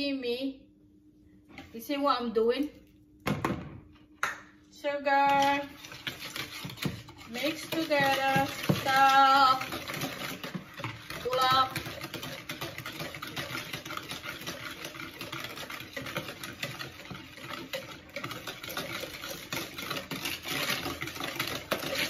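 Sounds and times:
whisk clicking and scraping in bowl: 0:05.1 - 0:22.0.

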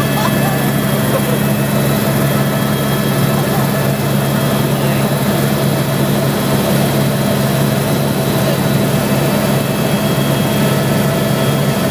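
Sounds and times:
helicopter engine and rotor drone: 0:00.0 - 0:11.9.

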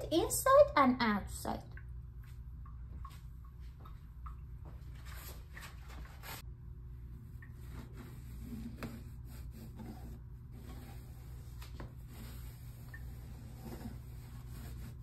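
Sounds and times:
steady low hum: 0:00.0 - 0:15.0
cloth rubbing wet pumpkin: 0:07.6 - 0:15.0.

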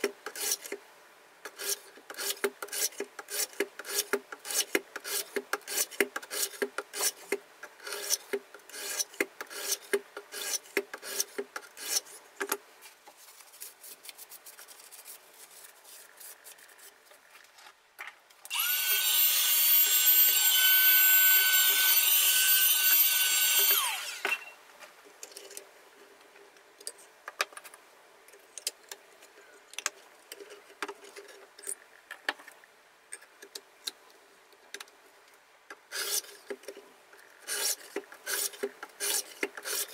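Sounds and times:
small electric motor whine: 0:18.5 - 0:24.6.

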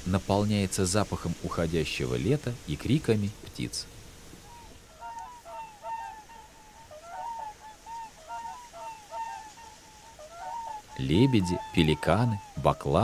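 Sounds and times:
swans calling: 0:04.4 - 0:13.0.

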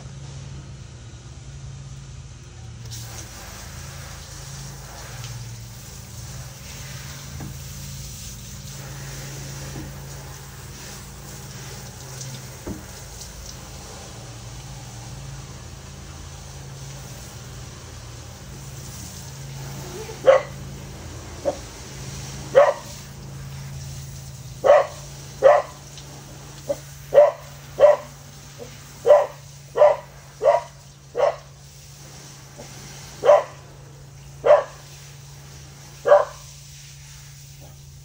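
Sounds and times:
dog barking: 0:19.8 - 0:20.6, 0:22.5 - 0:23.0, 0:24.6 - 0:25.8, 0:26.7 - 0:31.5, 0:33.2 - 0:33.6, 0:34.4 - 0:34.9, 0:36.0 - 0:36.5
dog yipping softly: 0:19.8 - 0:20.6, 0:24.7 - 0:25.8, 0:26.7 - 0:28.1, 0:29.1 - 0:31.4, 0:33.2 - 0:33.6, 0:34.4 - 0:34.8, 0:36.1 - 0:36.4.

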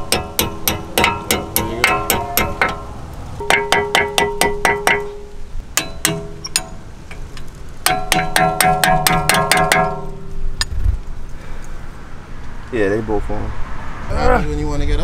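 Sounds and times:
clicky percussion beat: 0:00.0 - 0:10.7.

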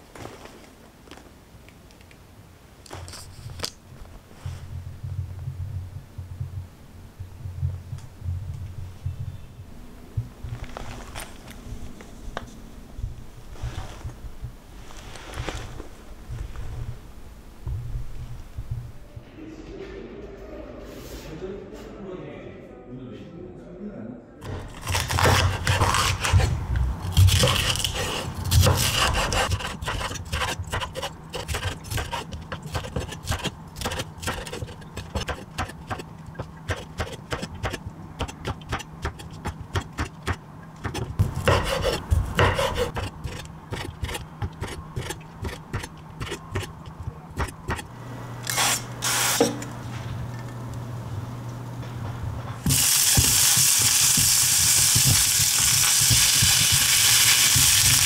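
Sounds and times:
knife chopping on wooden board: 0:24.5 - 0:47.8
vegetables sizzling in hot pan: 0:52.7 - 0:58.0.

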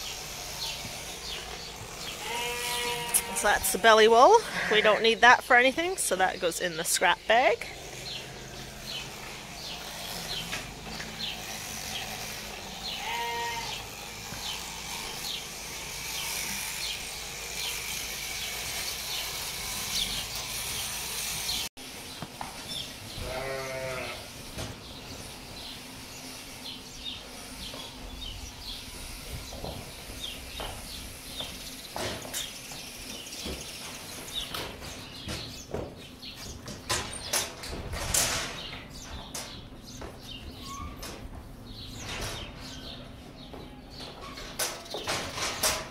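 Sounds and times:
sheep bleating: 0:02.0 - 0:03.8, 0:04.4 - 0:05.2, 0:12.8 - 0:15.4, 0:23.2 - 0:24.3
sharp knocks and rustles: 0:29.1 - 0:45.9.

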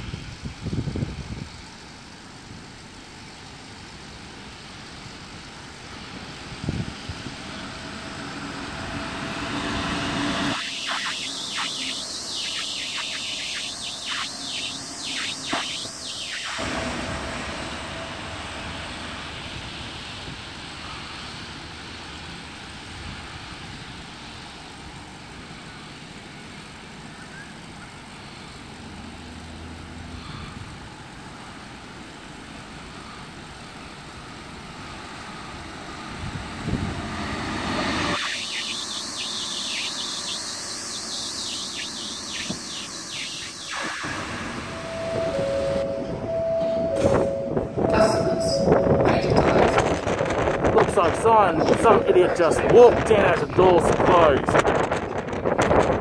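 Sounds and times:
loud hiss: 0:00.0 - 0:26.1, 0:30.1 - 0:45.8
steady rushing outdoor noise: 0:00.0 - 0:46.2, 0:47.0 - 0:56.0.

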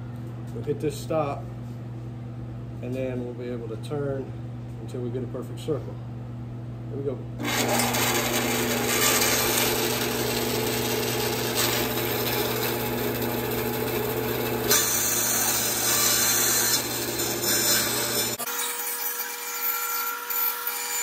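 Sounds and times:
bandsaw motor hum: 0:07.4 - 0:19.4.

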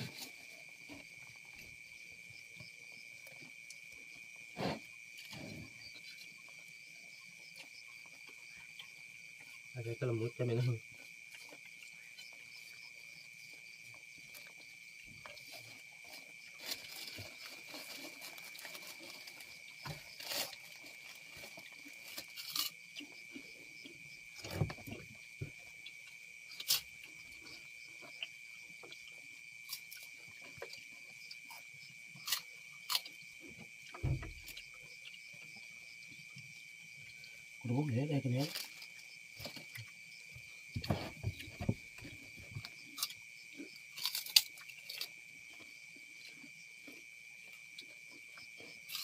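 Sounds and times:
crickets droning: 0:00.0 - 0:49.0
people eating with crunches: 0:00.0 - 0:49.0
dull thumps: 0:40.7 - 0:42.6.

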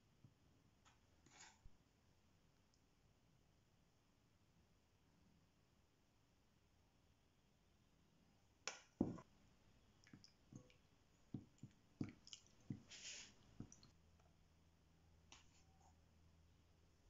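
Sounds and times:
flour rustling from spoon: 0:12.8 - 0:13.4.

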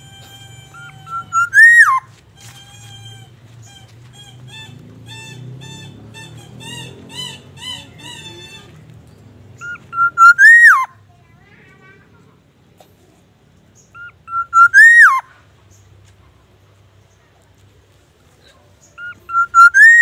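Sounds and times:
bird singing fluted whistles: 0:00.8 - 0:02.0, 0:09.6 - 0:10.9, 0:14.0 - 0:15.2, 0:19.0 - 0:20.0
soft repeated arched whistles: 0:00.8 - 0:02.1, 0:09.6 - 0:10.9, 0:14.0 - 0:15.4, 0:18.9 - 0:20.0.

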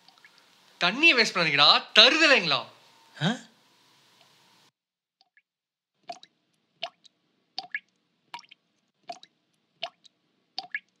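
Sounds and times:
water dripping: 0:00.0 - 0:00.8, 0:06.0 - 0:11.0.

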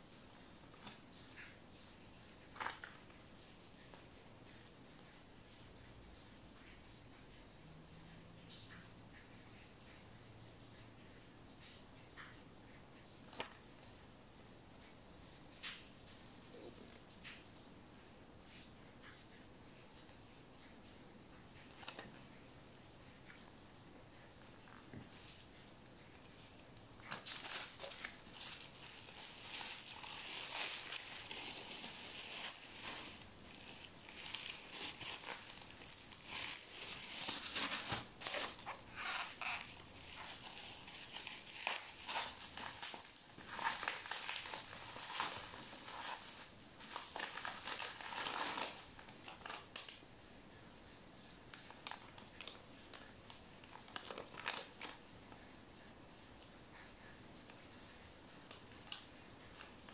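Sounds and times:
plastic packaging crinkling: 0:02.4 - 0:03.1, 0:24.1 - 0:50.0, 0:51.5 - 0:55.0.

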